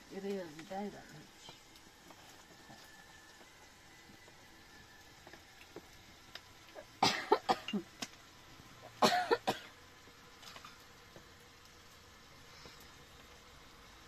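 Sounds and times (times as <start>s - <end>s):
woman coughing: 7.0s - 7.9s, 9.0s - 9.7s.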